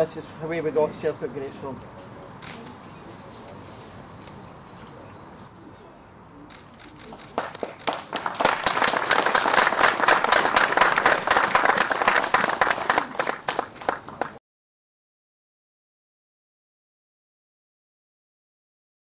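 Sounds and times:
people clapping: 6.7s - 14.4s.

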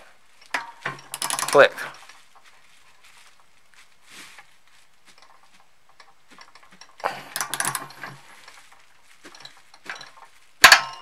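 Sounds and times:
torque wrench ratcheting: 0.4s - 2.0s, 6.3s - 8.2s.

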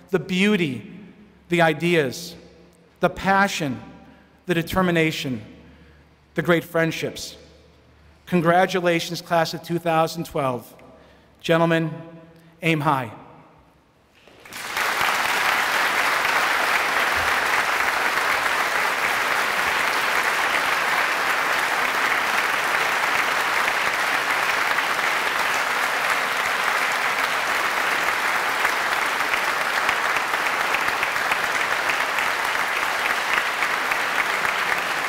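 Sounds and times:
audience applauding: 14.2s - 35.0s.

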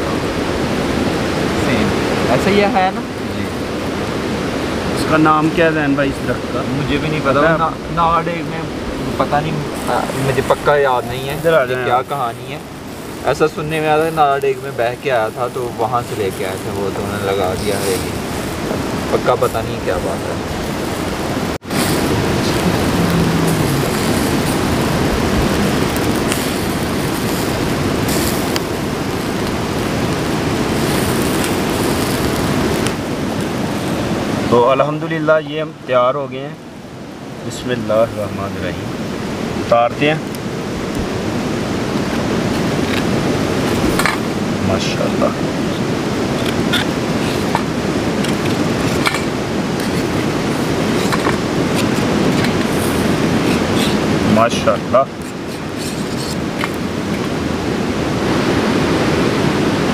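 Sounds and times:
loud rushing noise: 0.0s - 34.6s
meat sizzling over charcoal grill: 0.2s - 36.0s, 37.2s - 59.9s.

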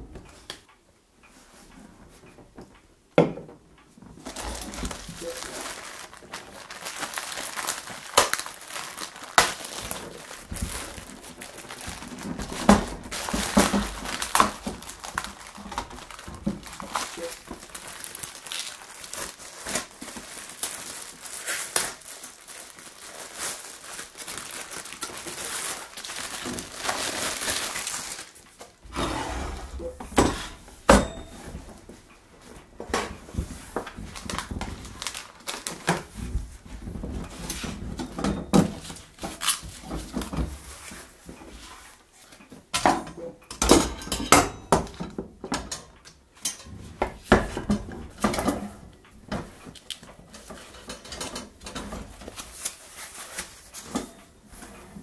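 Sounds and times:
plastic bag crinkling: 4.2s - 28.8s, 33.8s - 36.7s.

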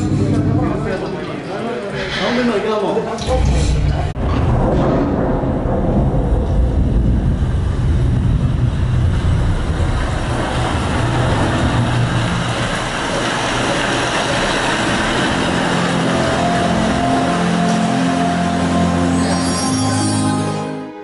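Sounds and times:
deep rumbling effect: 0.0s - 19.5s
rushing noise: 1.9s - 20.3s
held musical tones: 14.8s - 21.0s.

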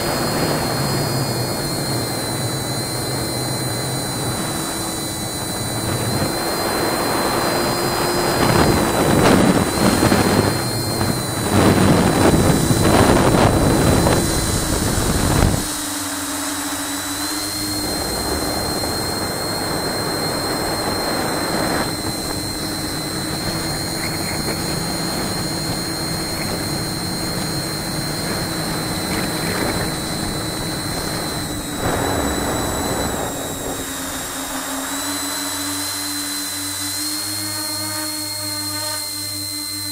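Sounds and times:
wind gusts: 0.0s - 35.7s
drone motors humming: 0.0s - 39.9s.

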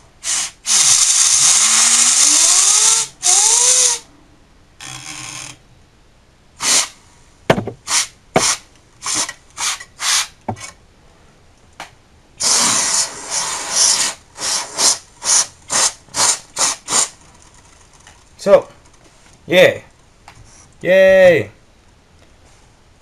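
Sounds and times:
compressed air spraying: 0.2s - 4.0s, 6.6s - 7.0s, 7.9s - 10.3s, 12.4s - 17.1s.

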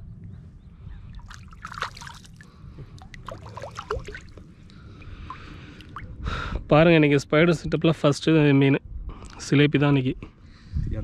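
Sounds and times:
water splashing and dripping: 1.1s - 6.2s.

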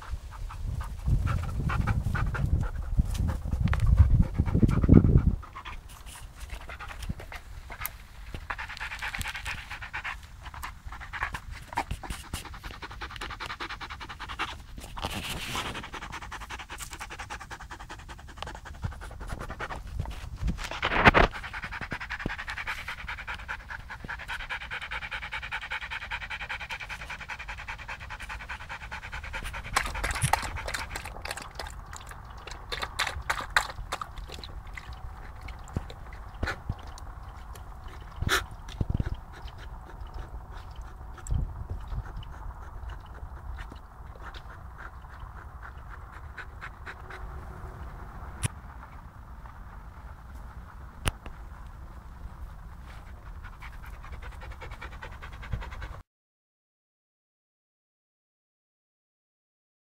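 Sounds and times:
dog panting: 0.0s - 48.5s, 52.5s - 56.0s
loud low rumble: 34.6s - 52.8s.

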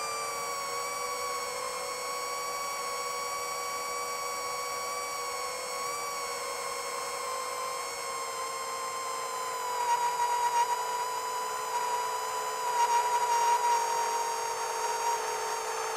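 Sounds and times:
quadcopter motors whining: 0.0s - 15.9s.

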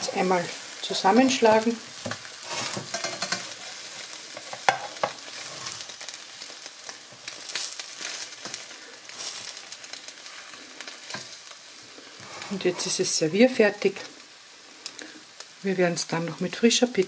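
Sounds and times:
omelette sizzling in a frying pan: 0.0s - 17.0s
spatula scraping a pan: 1.9s - 5.9s, 12.1s - 13.2s.

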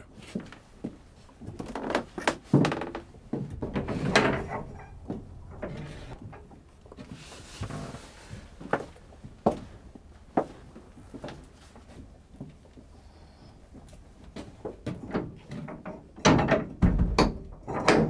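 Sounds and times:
footsteps: 0.2s - 12.8s
door being opened: 2.6s - 6.2s
knocks and thuds: 2.6s - 6.4s, 16.2s - 18.0s.

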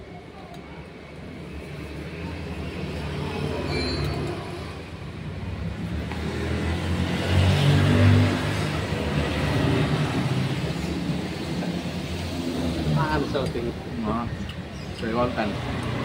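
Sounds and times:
vehicle engine passing: 4.4s - 14.0s.

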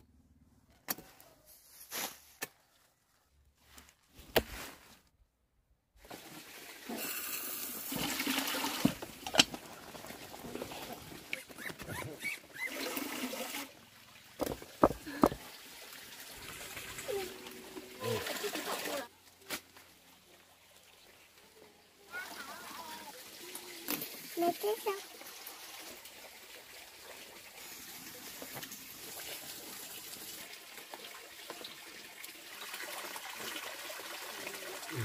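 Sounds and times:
pot hissing and bubbling: 6.8s - 8.5s.

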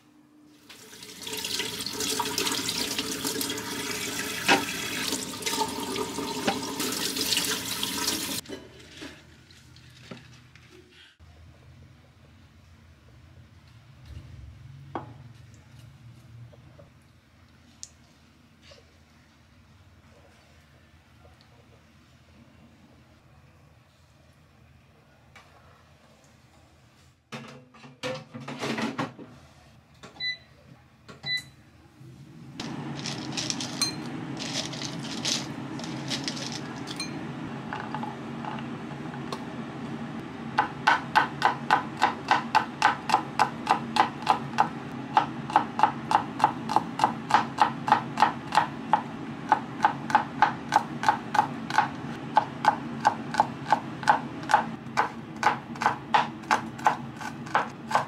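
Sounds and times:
air fryer humming: 0.0s - 8.8s, 31.2s - 58.0s
air fryer control beeping: 30.2s - 30.5s, 31.2s - 31.6s
air fryer basket knocking: 40.6s - 57.8s
knife chopping on wooden board: 40.6s - 58.0s.

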